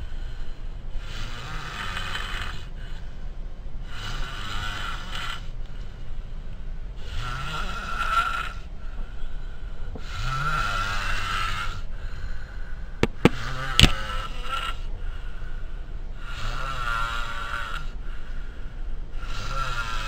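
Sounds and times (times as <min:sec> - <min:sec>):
person snoring heavily: 0:01.0 - 0:02.7, 0:07.0 - 0:08.6, 0:16.2 - 0:18.0, 0:19.2 - 0:20.0.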